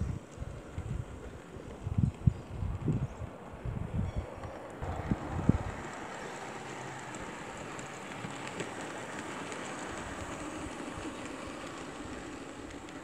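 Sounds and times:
wind on microphone: 0.0 - 6.0
model train running on track: 0.0 - 13.0.

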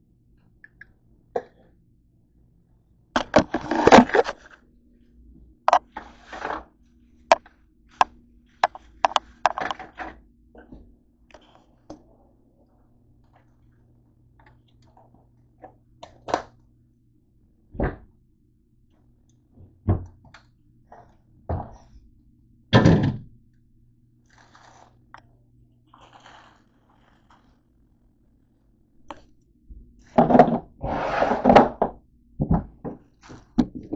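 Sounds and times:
faint steady hum: 0.0 - 33.9
plastic bag crinkling: 25.9 - 27.8.

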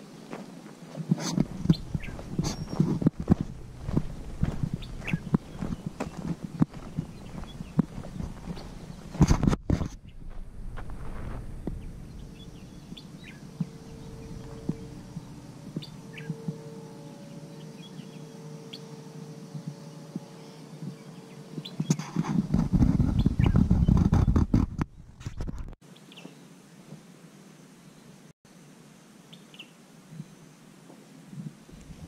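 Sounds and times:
faint steady hum: 0.0 - 23.0
small birds chirping: 1.3 - 24.5, 25.9 - 26.5
camera handling rumble and knocks: 9.1 - 11.8, 21.9 - 25.8.

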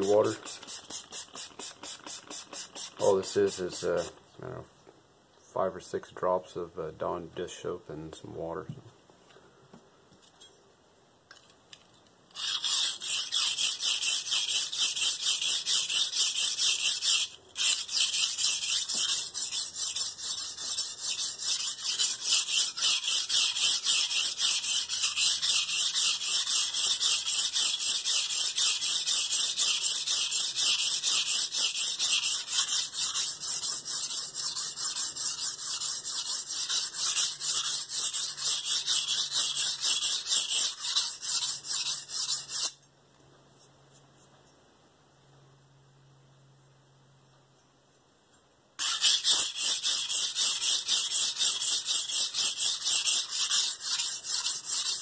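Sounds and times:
knife scraping on whetstone: 12.3 - 42.8, 48.8 - 55.0.

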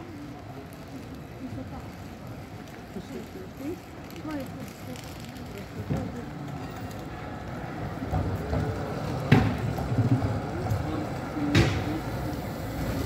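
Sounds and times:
tram rumbling: 0.0 - 13.0
sharp tram clack: 5.8 - 13.0.

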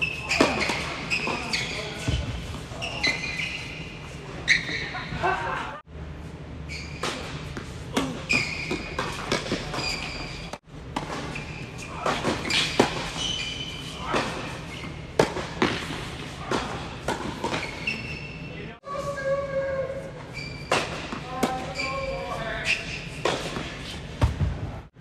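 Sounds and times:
shoe squeaks: 0.0 - 5.1, 6.6 - 7.4, 8.2 - 10.6, 11.2 - 15.0, 17.4 - 24.0
balls bouncing on hard court: 0.3 - 3.4, 7.0 - 13.4, 23.2 - 24.7
tennis balls struck by rackets: 15.1 - 17.6.

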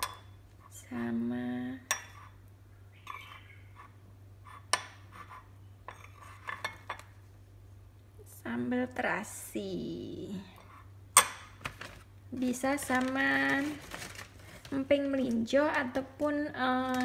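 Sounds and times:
metal spoon clinking on ceramic dish: 0.0 - 0.4, 1.9 - 2.3, 11.2 - 11.6.

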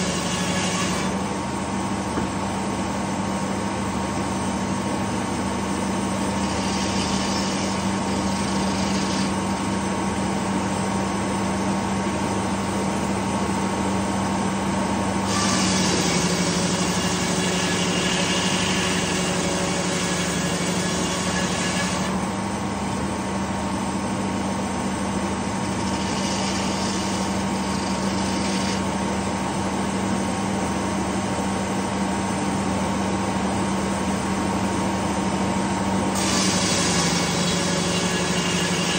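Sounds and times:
saw blade rasping through log: 0.0 - 1.2, 5.6 - 10.0, 15.2 - 22.3, 25.4 - 29.2, 36.1 - 38.9.

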